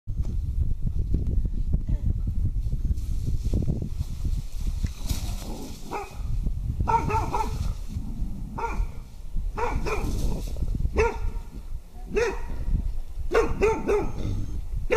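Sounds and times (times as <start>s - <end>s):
dog barking: 5.9s - 6.2s, 6.9s - 7.6s, 8.6s - 8.9s, 9.6s - 10.2s, 11.0s - 11.4s, 12.1s - 12.6s, 13.3s - 14.3s.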